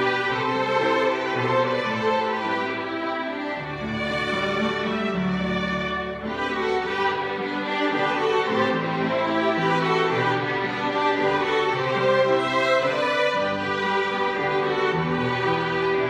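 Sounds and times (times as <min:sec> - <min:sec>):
violin ensemble playing waltz: 0:00.0 - 0:16.0.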